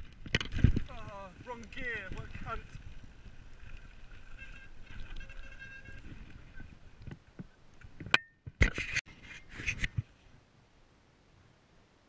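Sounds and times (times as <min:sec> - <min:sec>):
bike tyres and frame rattling: 0:00.0 - 0:08.2.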